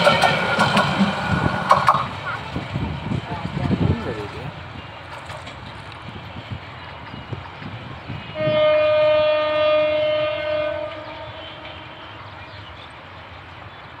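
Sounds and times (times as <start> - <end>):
train horn long blast: 8.1 - 12.6.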